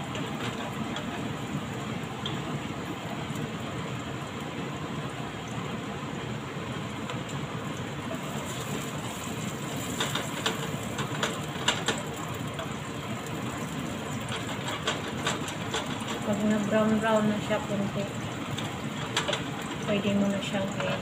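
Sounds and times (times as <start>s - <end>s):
food sizzling in hot oil: 6.6s - 21.0s.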